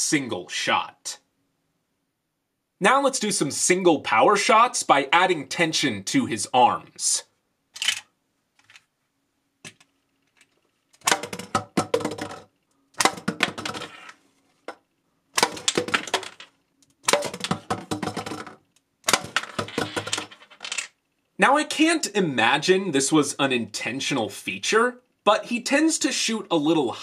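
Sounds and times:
toy blaster firing caps: 11.0 - 11.6, 13.0 - 14.0, 15.4 - 16.4, 19.0 - 20.8
plastic bottle clattering on table: 11.0 - 14.1, 15.4 - 20.9.

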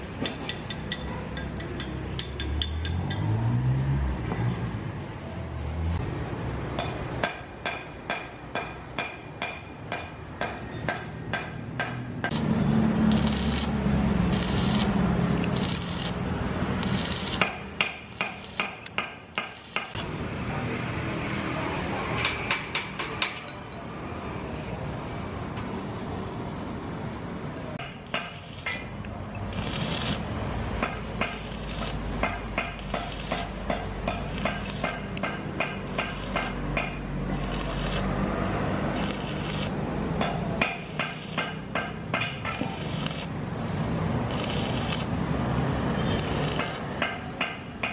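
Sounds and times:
hammer striking metal: 6.8 - 12.4, 16.9 - 20.0, 27.8 - 29.0, 30.8 - 38.0, 40.2 - 43.3, 46.2 - 47.9.

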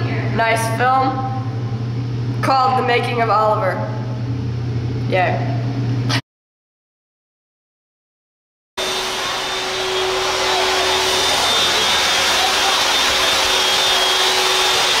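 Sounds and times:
machine whirring: 8.8 - 15.0.

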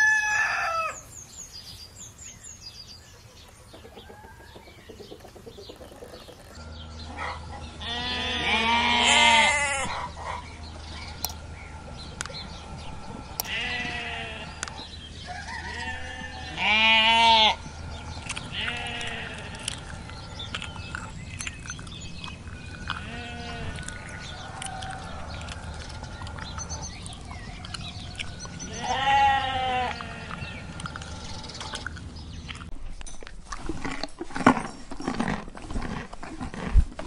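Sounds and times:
sheep bleating: 7.7 - 10.0, 13.5 - 14.6, 15.6 - 17.6, 18.4 - 19.8, 22.9 - 23.8, 28.6 - 30.6.

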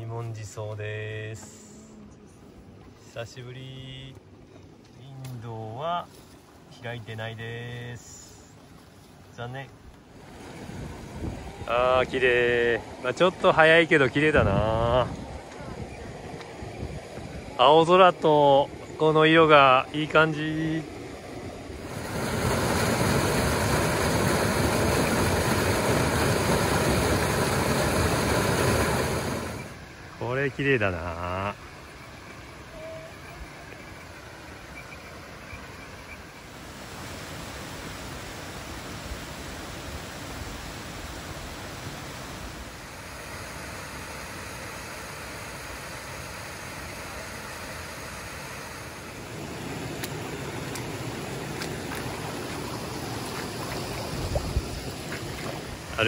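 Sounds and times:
water rushing through rocks: 17.2 - 31.2, 36.2 - 56.0.

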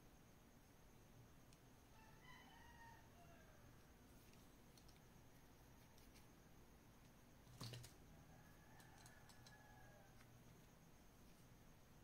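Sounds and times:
faint clicks of hand tools: 8.8 - 10.7.

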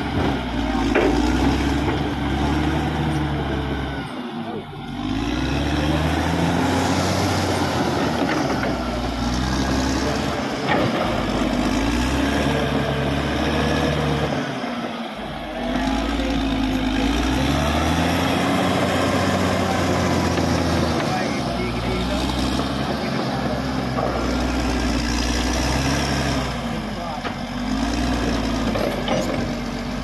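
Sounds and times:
bulldozer diesel engine under load: 0.0 - 30.0
metallic clanks: 28.6 - 29.6.

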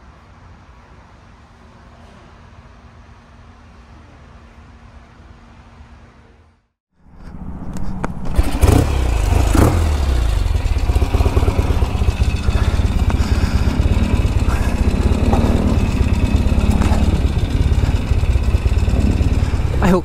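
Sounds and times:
motorcycle engine revving: 7.6 - 20.0.

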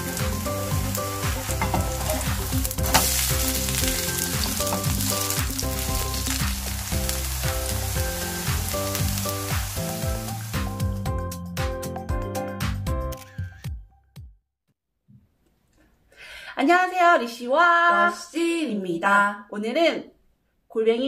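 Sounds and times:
pancake sizzling in oil: 0.0 - 10.7
background music with bass: 0.0 - 13.9.

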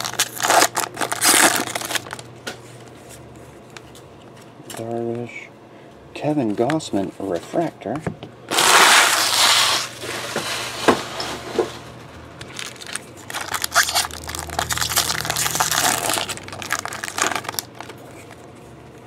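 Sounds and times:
foil wrapper crinkling: 0.0 - 2.3, 8.5 - 10.1, 12.4 - 19.0.

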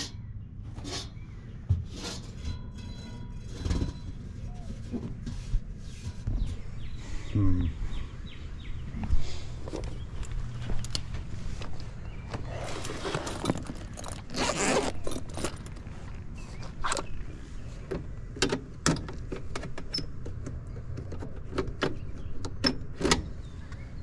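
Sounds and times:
rustling: 9.6 - 17.2.

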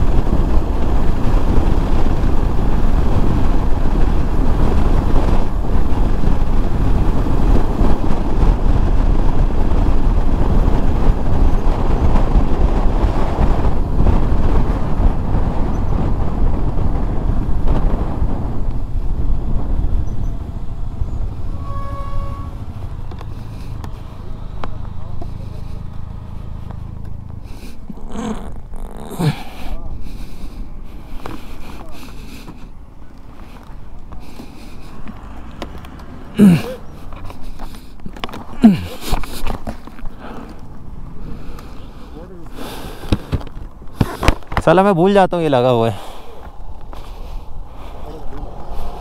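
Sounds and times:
wind rushing over microphone: 0.0 - 49.0
vehicle horn beep: 21.5 - 22.7.

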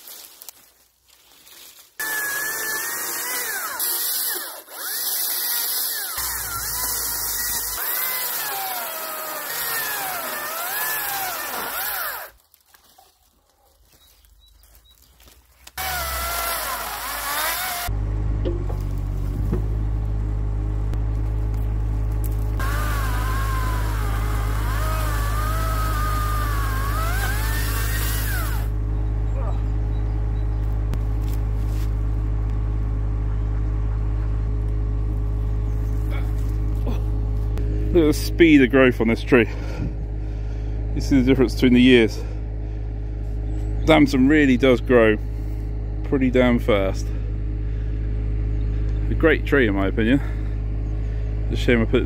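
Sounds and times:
engine droning: 2.0 - 12.4, 14.2 - 52.0
power saw cutting roots: 2.0 - 12.5, 15.6 - 19.9, 20.9 - 29.4.

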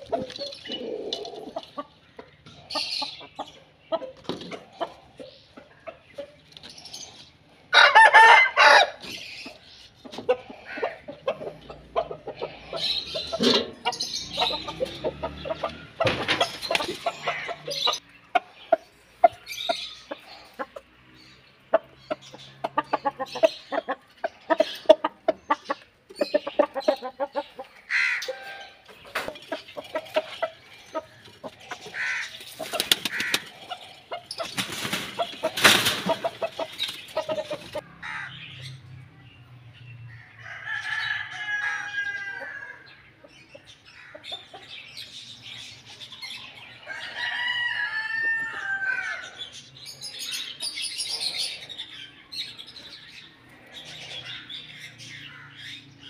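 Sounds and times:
hens clucking: 0.0 - 38.3
rooster crowing: 7.7 - 9.0, 40.4 - 42.8, 46.8 - 49.3.

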